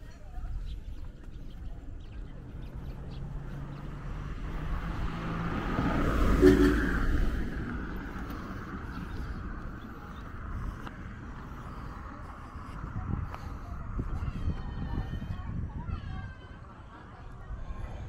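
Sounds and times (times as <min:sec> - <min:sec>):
vehicle passing: 0:01.4 - 0:15.7.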